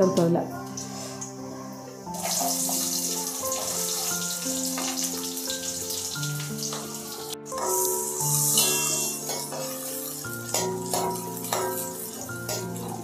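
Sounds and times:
background music: 0:00.0 - 0:13.0
onions sizzling in oil: 0:00.3 - 0:13.0.

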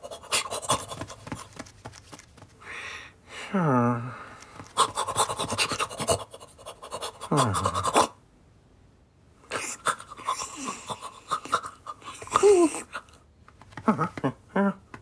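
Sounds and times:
cartoon puppy panting: 0:00.0 - 0:01.6, 0:04.6 - 0:08.2, 0:09.6 - 0:13.2.

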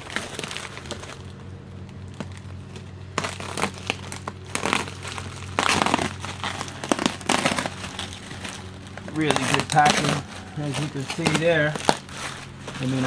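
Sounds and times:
bubble wrap crinkling: 0:00.0 - 0:13.0
steady low hum: 0:00.0 - 0:13.0.

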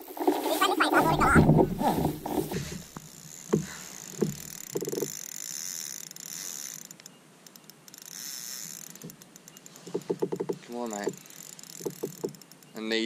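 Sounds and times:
short rattle: 0:00.0 - 0:12.9
fishing reel hiss: 0:03.1 - 0:10.0, 0:11.2 - 0:12.7.

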